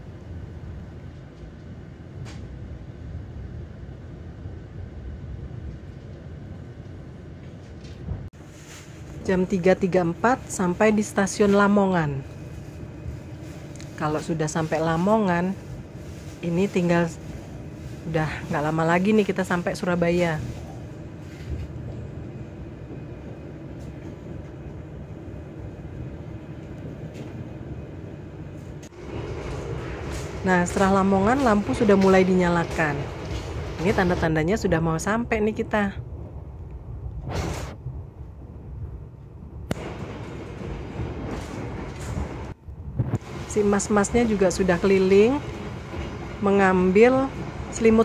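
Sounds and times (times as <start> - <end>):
train running rumble: 0.0 - 48.0.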